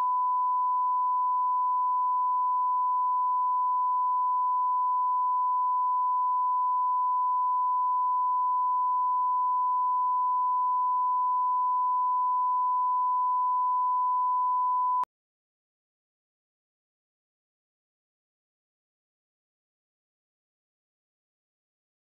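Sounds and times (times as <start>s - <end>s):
sine test tone: 0.0s - 15.1s.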